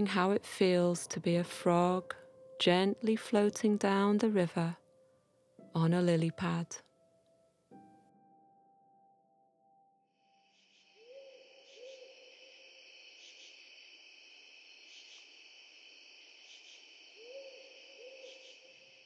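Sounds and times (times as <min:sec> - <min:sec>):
high insect trill: 0:10.4 - 0:19.0.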